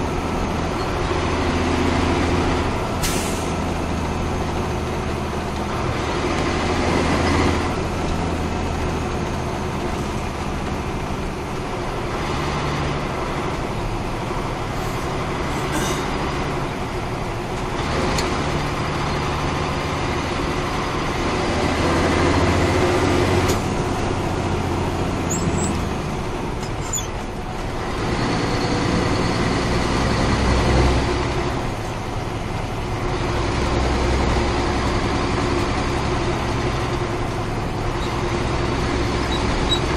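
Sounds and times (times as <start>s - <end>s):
diesel truck engine revving: 0.0s - 39.9s.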